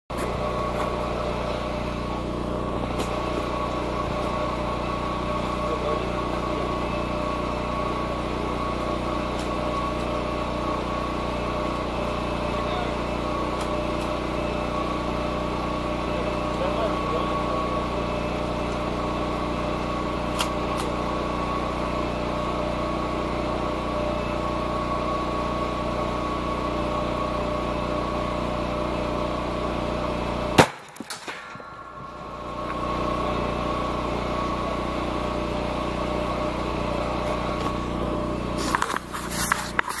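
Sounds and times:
small engine droning: 0.1 - 40.0
rifle shot: 30.6 - 31.7.

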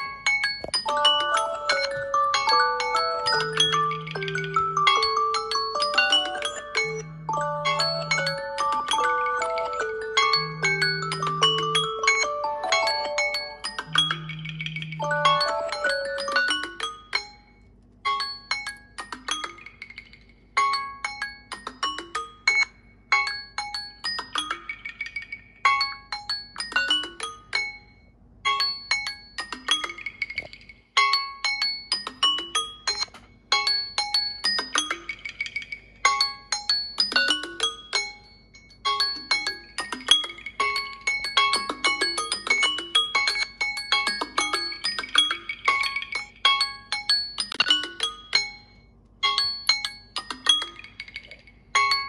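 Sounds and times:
bell-like alarm tone: 0.0 - 16.6.

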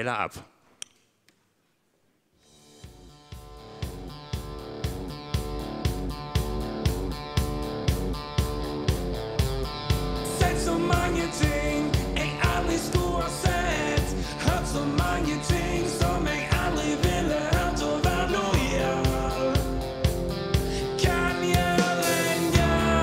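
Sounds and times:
rock music with drums: 2.4 - 23.0
person singing: 10.2 - 23.0.

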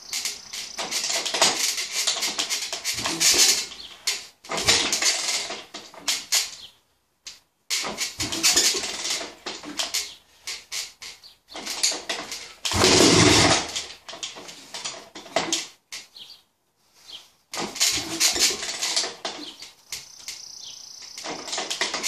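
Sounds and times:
motorcycle kick-start clattering: 0.8 - 6.4, 7.8 - 10.2, 11.6 - 15.7, 17.6 - 19.6
engine burst: 12.7 - 13.8.

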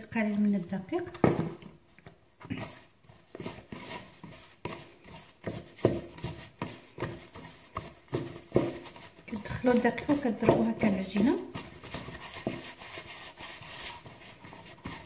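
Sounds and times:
dough squishing and slapping: 0.0 - 15.0.

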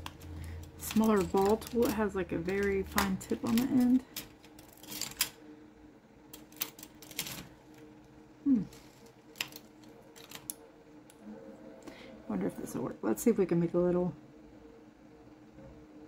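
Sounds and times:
sculpting tools clicking and clinking: 0.0 - 5.4
faint steady hum: 0.0 - 16.0.

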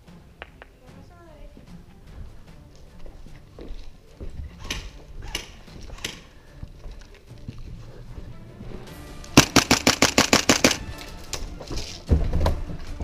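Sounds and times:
airsoft gun burst of cracks: 9.4 - 10.8.

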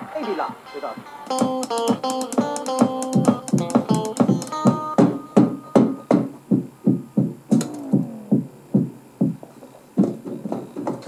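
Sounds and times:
electric guitar: 0.0 - 6.3
drum kit beat: 0.0 - 10.2.

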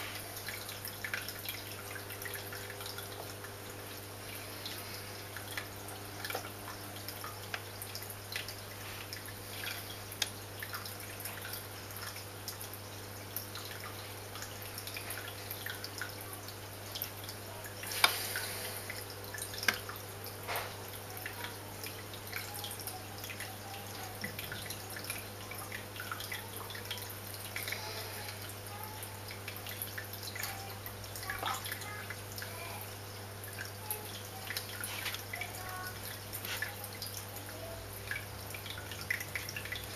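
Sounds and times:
sharp drips or splashes: 0.0 - 39.9
water dripping and trickling: 0.0 - 39.9.

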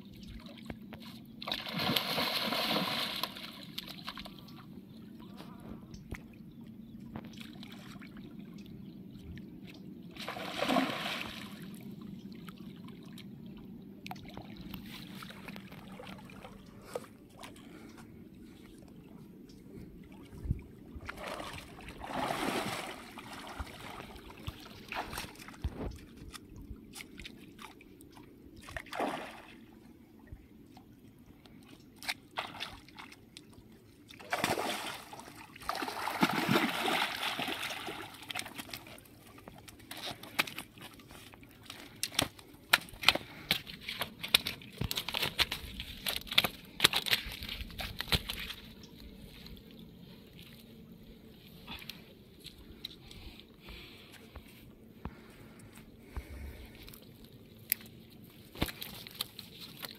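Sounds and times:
water lapping and sloshing: 0.0 - 59.9
fish thrashing splashes: 1.5 - 4.2, 10.2 - 11.6, 21.1 - 25.5, 34.2 - 38.9, 41.6 - 48.6.

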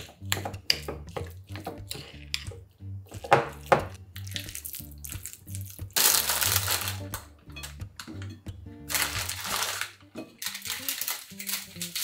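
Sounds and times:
spoon stirring wet meat in a bowl: 0.0 - 6.0
soft background music: 0.0 - 12.0.

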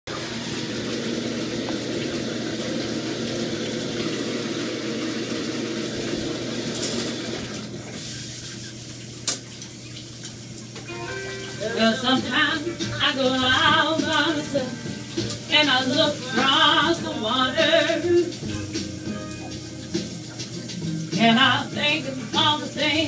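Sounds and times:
shower water spray hissing: 7.8 - 10.2, 11.2 - 23.0.

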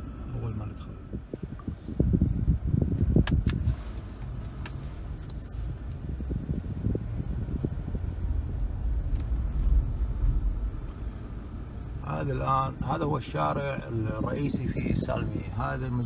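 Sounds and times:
car road and engine rumble: 0.0 - 16.0
sharp clicks: 3.2 - 3.6.

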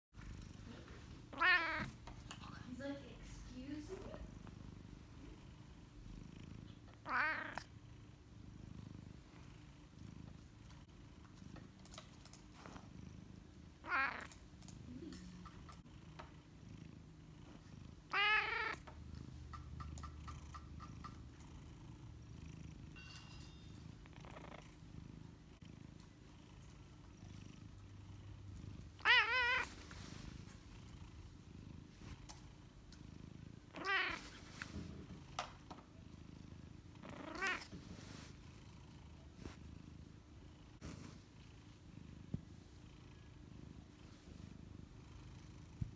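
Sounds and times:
cat purring: 0.1 - 45.9
cat meowing: 1.3 - 1.9, 7.0 - 7.6, 13.8 - 14.4, 18.1 - 18.8, 29.0 - 29.7, 33.7 - 34.3, 37.2 - 37.6.

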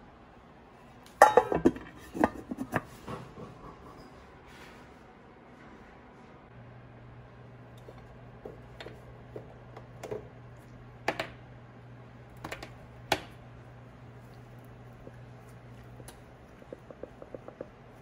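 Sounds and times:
low steady hum: 0.0 - 18.0
broth simmering with pops: 7.5 - 18.0.

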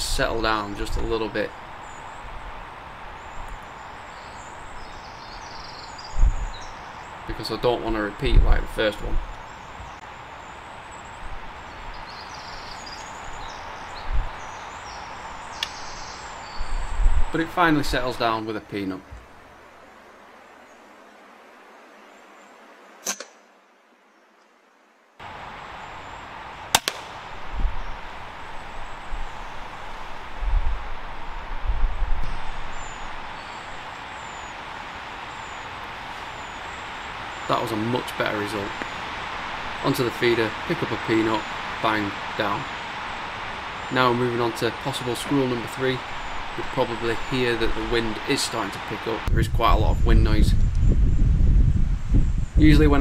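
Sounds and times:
wind buffeting microphone: 0.0 - 18.4, 25.2 - 53.0
wood background hiss: 0.0 - 49.3
sharp click: 23.0 - 23.4.

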